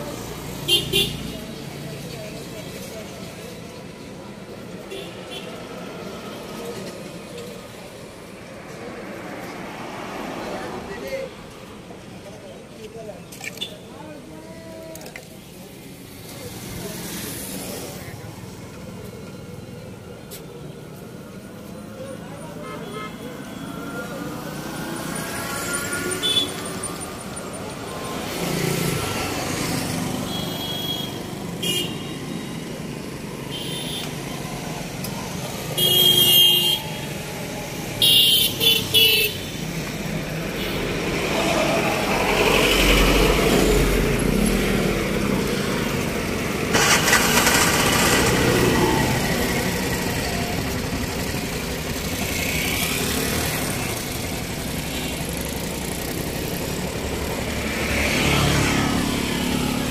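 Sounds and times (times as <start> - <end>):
road traffic passing: 0.0 - 59.9
vehicle horns: 0.6 - 1.4, 22.5 - 23.8, 30.3 - 32.2, 33.5 - 34.3, 35.7 - 37.2, 38.0 - 39.7, 46.8 - 48.2.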